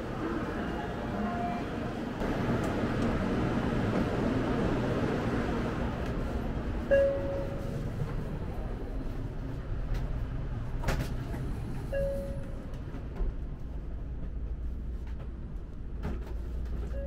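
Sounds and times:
train interior hum and rumble: 0.0 - 17.0.

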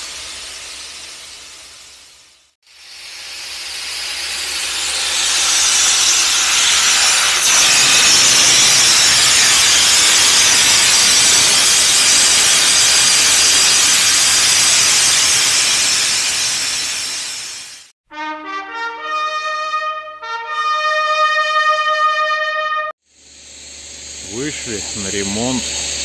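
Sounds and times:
hiss of pressure washer jet: 0.0 - 17.9, 24.2 - 26.0.

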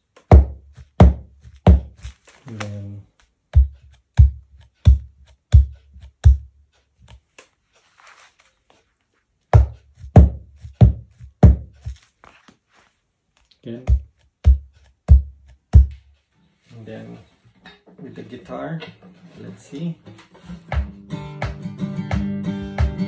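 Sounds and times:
deep kick drum thumps: 0.3 - 2.0, 3.5 - 6.5, 9.6 - 11.9, 13.8 - 16.0.

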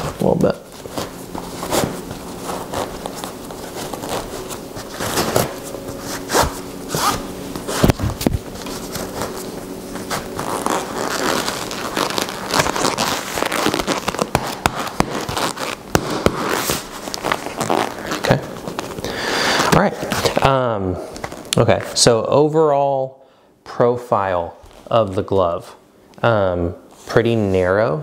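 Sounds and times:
laces rasping through leather: 0.7 - 19.7.

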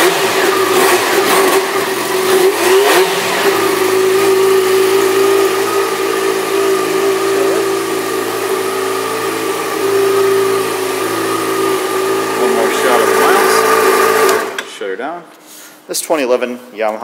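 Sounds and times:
motorcycle engine idling: 3.1 - 14.5.

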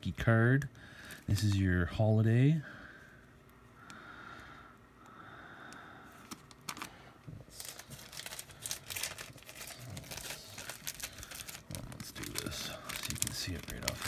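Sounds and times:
tissue paper crinkling: 6.2 - 14.0.

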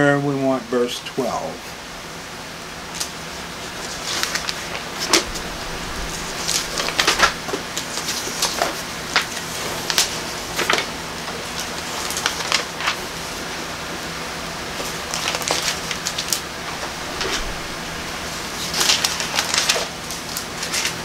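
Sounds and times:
book pages turning: 3.8 - 10.9, 11.6 - 13.0, 14.8 - 21.0.

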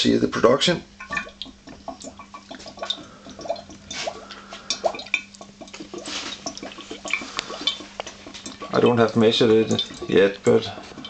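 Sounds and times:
faint steady hum: 0.0 - 11.0
gas bubbling through water: 0.8 - 11.0.

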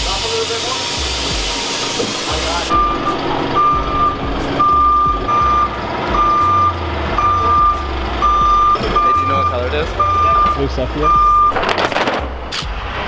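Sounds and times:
forklift engine rumble: 0.0 - 13.0
forklift reversing alarm beeping: 1.6 - 11.6.

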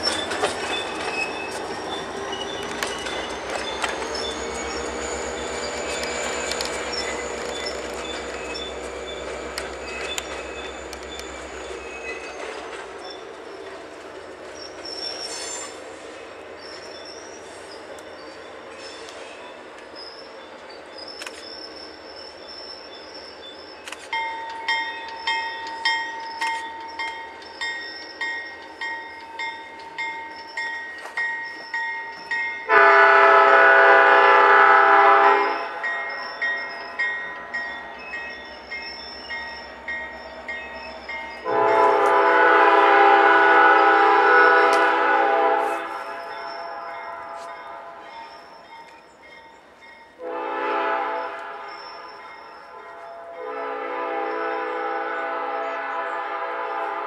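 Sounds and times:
locomotive horn blasts: 32.7 - 35.8, 41.4 - 48.0, 50.2 - 57.0.

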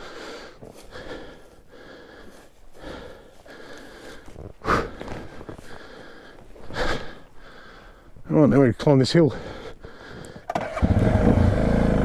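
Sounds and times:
person breathing hard: 0.0 - 8.2, 9.3 - 10.5.

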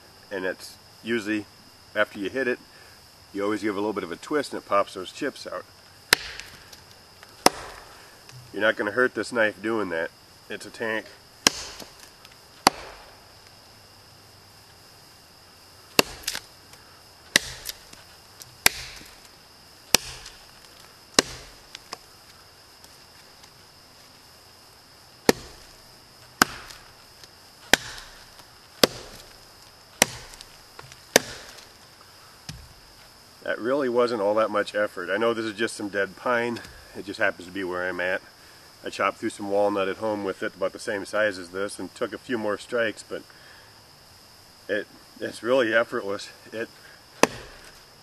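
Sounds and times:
insects buzzing faintly: 0.0 - 48.0
knife chopping into log: 6.1 - 6.6, 7.4 - 8.5, 11.4 - 13.1, 16.0 - 16.5, 17.3 - 18.0, 18.6 - 19.2, 19.9 - 20.4, 21.2 - 22.0, 25.3 - 25.8, 26.4 - 26.9, 27.7 - 29.4, 30.0 - 31.7, 47.2 - 47.8.

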